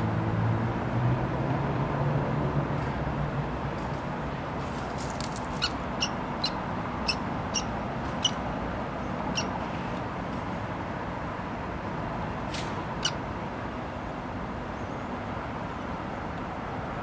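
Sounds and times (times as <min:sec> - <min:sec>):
steady background hum: 0:03.4 - 0:17.0
nestlings squeaking: 0:05.5 - 0:08.4.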